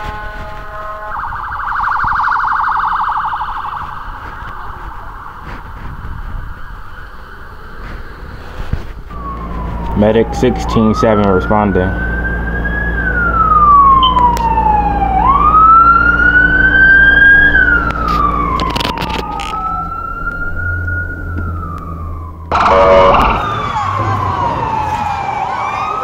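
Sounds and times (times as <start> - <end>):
emergency vehicle siren wailing: 0.0 - 26.0
loud siren blast: 0.0 - 26.0.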